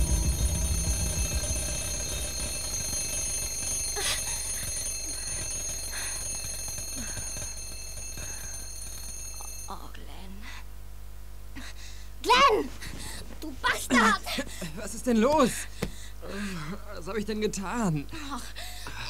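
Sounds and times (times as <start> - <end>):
alarm clock bell ringing: 0.0 - 10.0.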